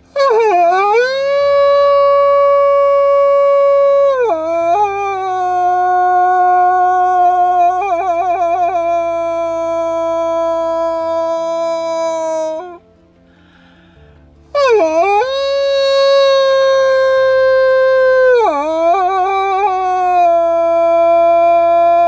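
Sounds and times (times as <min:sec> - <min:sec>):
person howling into wolf call: 0:00.1 - 0:12.8, 0:14.5 - 0:22.0.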